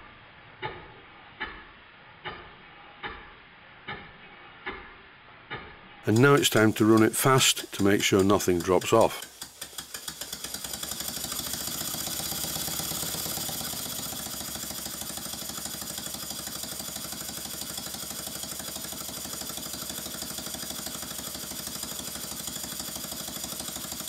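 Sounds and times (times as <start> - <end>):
model steam engine exhaust beat: 6.1 - 24.0.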